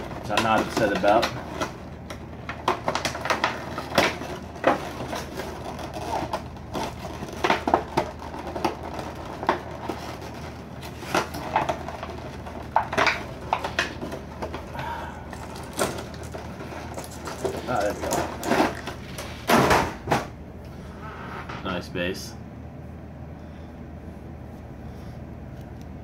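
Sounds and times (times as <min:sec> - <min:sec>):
plastic wrap crinkling: 0:00.0 - 0:19.5.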